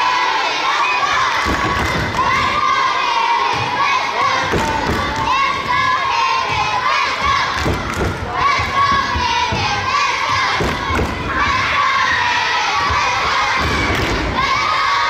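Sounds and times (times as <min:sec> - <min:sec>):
children shouting and cheering: 0:00.0 - 0:15.0.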